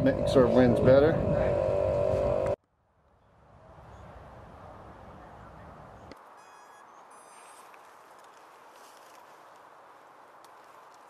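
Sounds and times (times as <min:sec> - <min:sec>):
steady hum: 0:00.0 - 0:02.6
faint outdoor background noise: 0:00.0 - 0:11.0.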